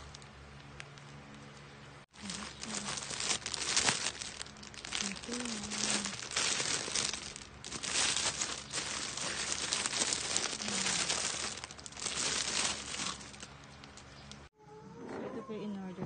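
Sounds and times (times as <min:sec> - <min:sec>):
packaging crinkling and rustling: 0:02.1 - 0:14.5.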